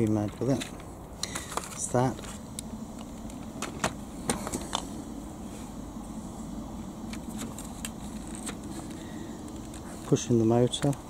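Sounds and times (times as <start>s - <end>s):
distant machinery drone: 0.0s - 11.0s.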